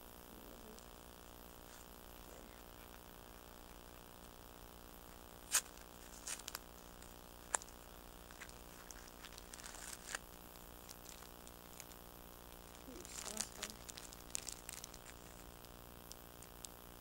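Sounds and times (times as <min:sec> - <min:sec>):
plastic wrapper crinkling: 0:05.4 - 0:16.8.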